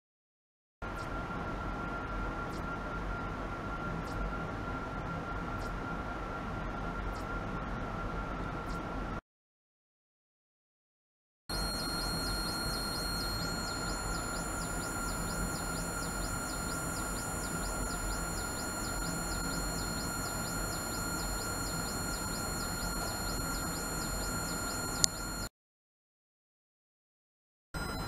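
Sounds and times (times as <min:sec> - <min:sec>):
high-pitched whine with sweeping tones: 0:11.5 - 0:25.5.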